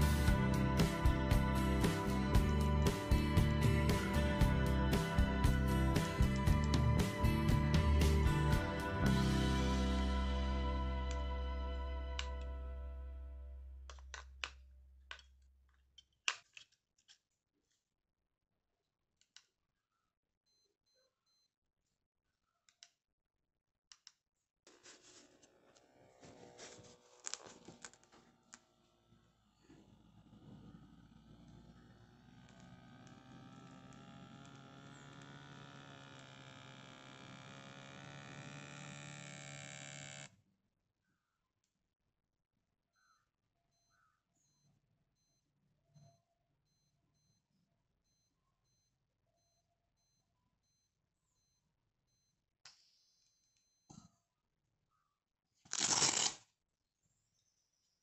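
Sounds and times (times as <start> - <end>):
faint electronic beeps: 20.5 - 21.5, 42.9 - 54.2.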